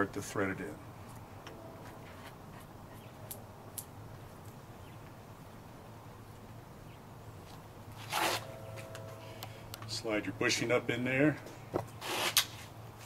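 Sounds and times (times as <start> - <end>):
low hum: 0.7 - 6.9, 7.7 - 11.5.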